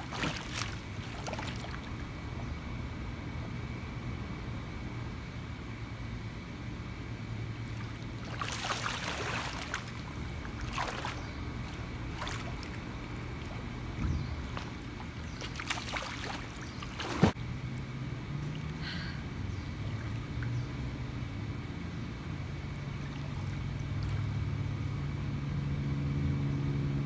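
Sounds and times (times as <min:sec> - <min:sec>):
pool water splashing: 0:00.0 - 0:02.4, 0:07.5 - 0:24.9
steady low hum: 0:00.0 - 0:27.0.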